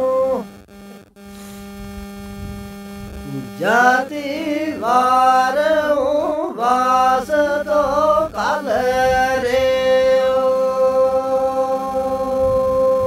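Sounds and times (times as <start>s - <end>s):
man singing unaccompanied: 0.0s - 0.5s, 3.3s - 13.0s.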